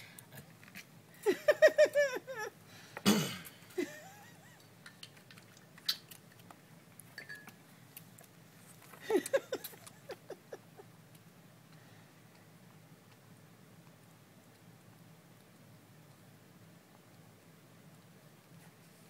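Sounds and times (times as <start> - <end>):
woman giggling: 1.2 - 2.6, 3.8 - 4.6, 9.0 - 10.9.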